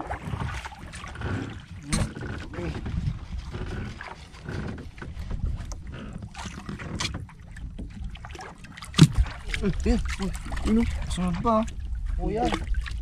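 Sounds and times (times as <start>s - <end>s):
wind rumble on microphone: 0.0s - 8.2s
water sloshing against boat hull: 0.0s - 13.0s.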